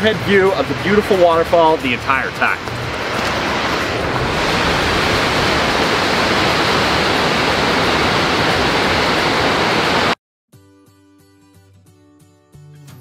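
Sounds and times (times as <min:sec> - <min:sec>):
waterfall roaring: 0:00.0 - 0:10.2.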